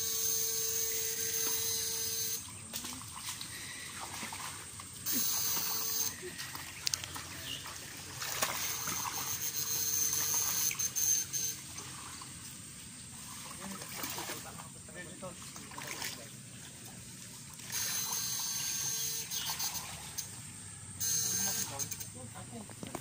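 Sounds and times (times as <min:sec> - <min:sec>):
water sloshing and splashing: 0:02.3 - 0:20.6.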